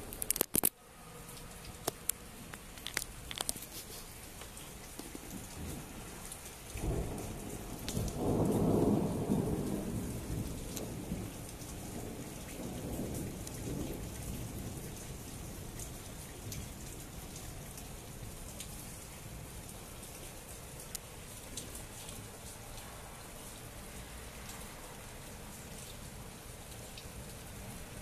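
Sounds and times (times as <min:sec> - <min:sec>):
light rain: 0:00.0 - 0:28.0
thunder rumbling: 0:06.8 - 0:15.7.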